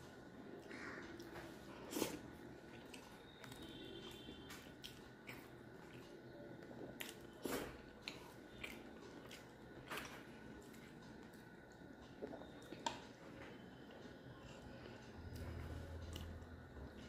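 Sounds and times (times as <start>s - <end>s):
chewing: 0.6s - 13.5s.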